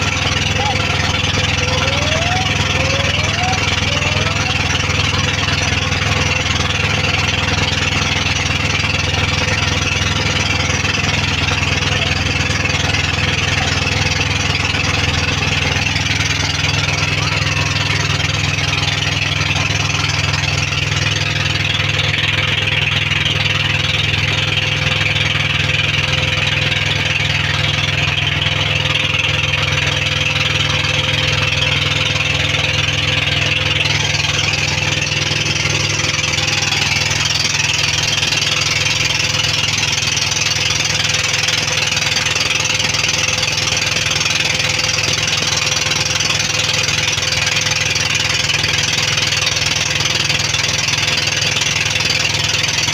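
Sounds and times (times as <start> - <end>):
boat engine droning: 0.0 - 52.9.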